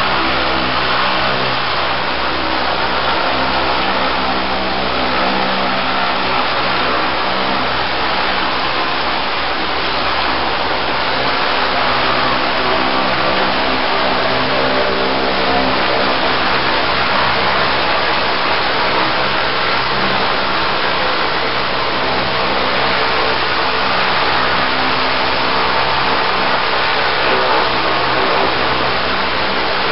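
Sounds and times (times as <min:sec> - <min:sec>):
pump engine drone: 0:00.0 - 0:29.9.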